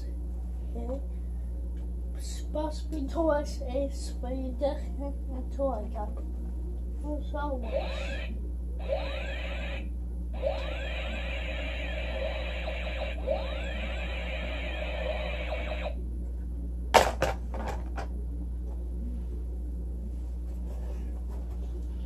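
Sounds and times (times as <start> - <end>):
electronic warbling chirps: 7.7 - 15.9.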